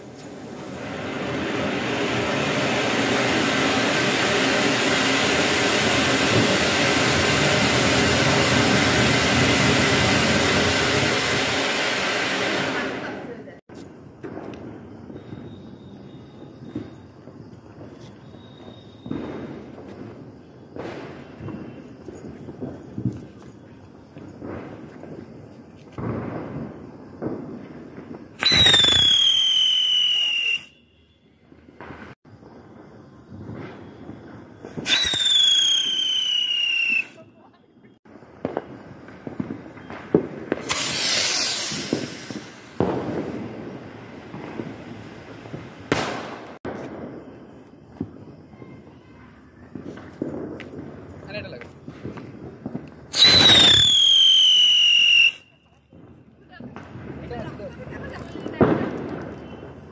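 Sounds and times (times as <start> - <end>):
firework fountain hissing: 0.0 - 30.8, 31.8 - 37.5, 38.2 - 48.4, 49.1 - 59.9
rushing hiss: 40.6 - 42.8.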